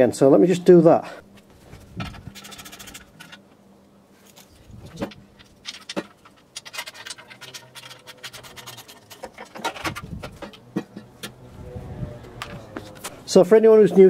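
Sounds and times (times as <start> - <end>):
hand tools clicking and scraping: 1.4 - 3.5, 4.2 - 11.4.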